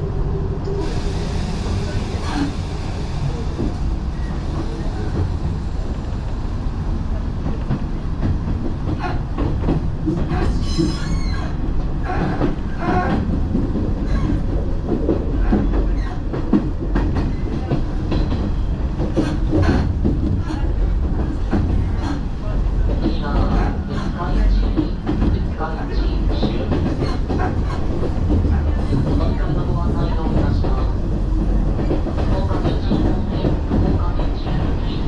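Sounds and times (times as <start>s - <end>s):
train wheels rumbling on rail: 0.0s - 35.0s.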